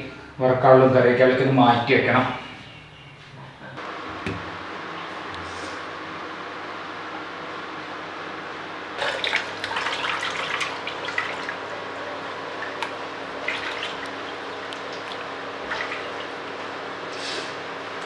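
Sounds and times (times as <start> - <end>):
water splashing and dripping: 9.0 - 11.7, 12.6 - 16.7.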